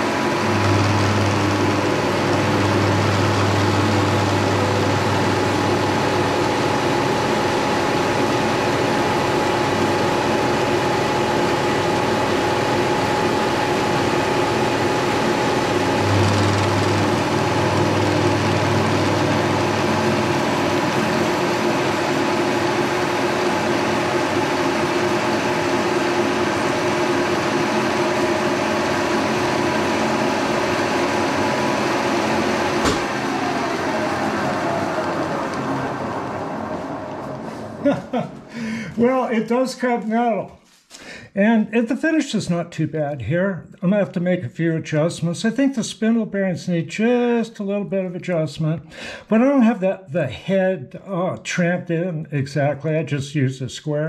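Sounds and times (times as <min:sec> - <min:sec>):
metal cutting noise: 0:00.0 - 0:39.2
milling machine hum: 0:00.0 - 0:39.3.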